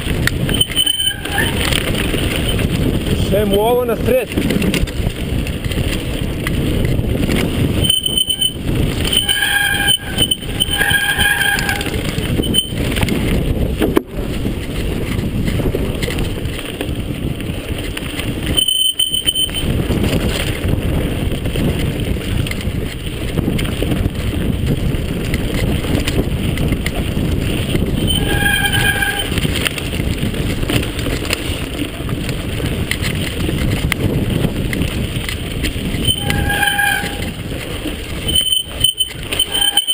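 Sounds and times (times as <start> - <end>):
bike rattling on dirt trail: 0.0 - 39.9
wind on microphone: 0.0 - 39.9
disc brakes squealing: 0.4 - 2.7, 7.8 - 12.9, 18.5 - 19.8, 27.8 - 29.6, 35.8 - 37.5, 38.1 - 39.9.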